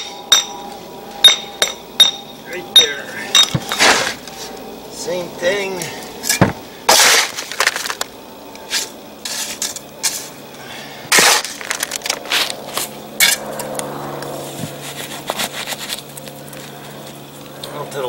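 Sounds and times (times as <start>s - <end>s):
stones clinking and scraping: 6.3s - 8.1s, 11.1s - 12.9s.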